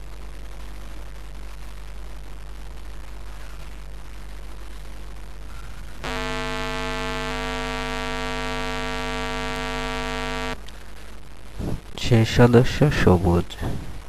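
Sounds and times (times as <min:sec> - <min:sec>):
low hum: 0:06.0 - 0:10.6
steady buzzing tone: 0:06.0 - 0:10.6.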